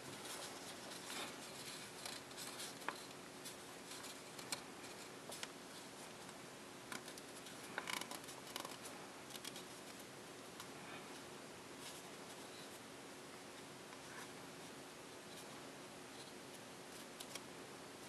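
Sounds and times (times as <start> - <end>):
paper crinkling and crackling: 0.0 - 12.8, 16.2 - 17.5
low steady hum: 0.0 - 18.0.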